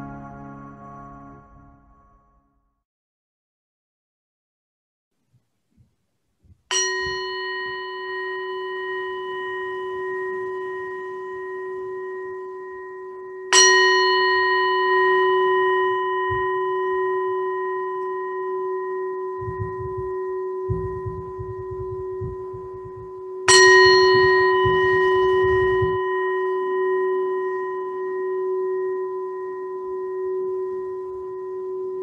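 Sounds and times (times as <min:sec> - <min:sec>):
meditation bell ringing: 0:06.7 - 0:32.0.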